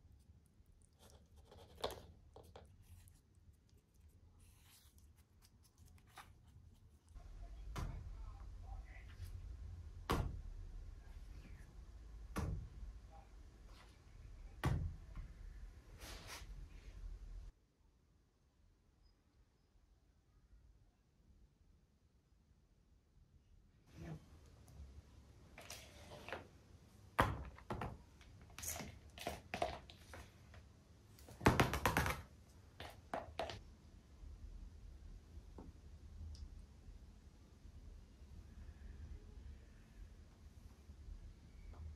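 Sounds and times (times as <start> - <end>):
brush scraping plastic palette: 0.8 - 7.2.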